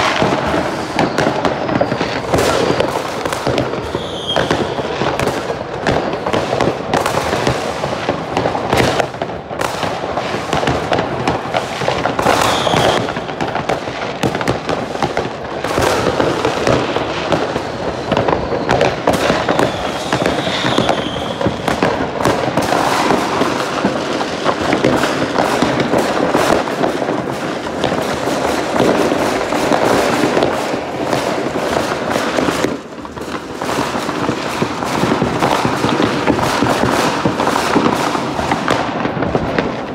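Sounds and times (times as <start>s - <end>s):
firework whistles: 0.0s - 9.1s, 11.4s - 26.7s
fireworks crackling and banging: 0.0s - 39.9s.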